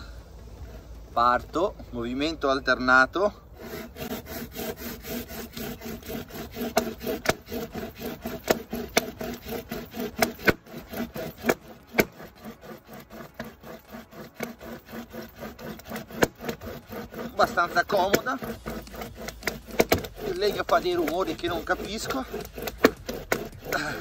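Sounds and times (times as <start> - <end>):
pocket chain saw rasping wood: 0.0 - 24.0.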